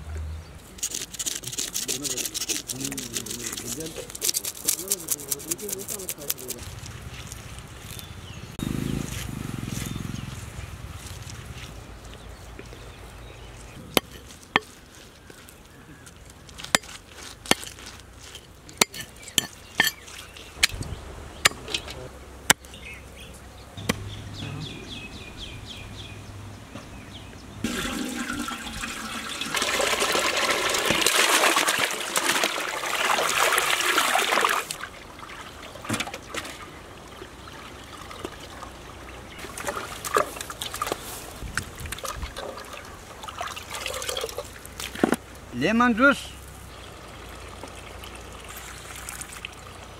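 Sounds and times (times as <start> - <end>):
water splashing into metal basin: 27.6 - 38.7, 41.8 - 45.0
water dripping: 27.6 - 45.0, 46.7 - 49.9.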